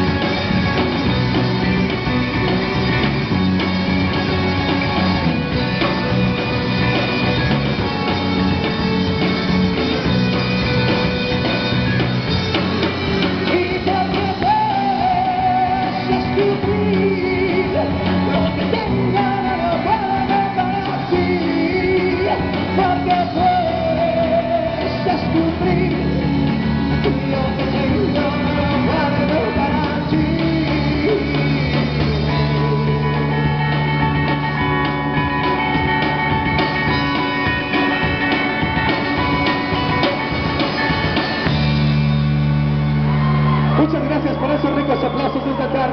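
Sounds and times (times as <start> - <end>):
live rock band playing: 0.0 - 45.9
man singing into a microphone: 13.3 - 33.3.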